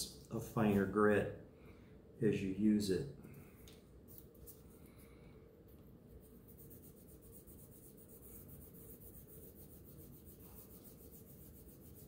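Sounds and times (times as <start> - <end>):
sandpaper scratching metal: 6.5 - 12.0.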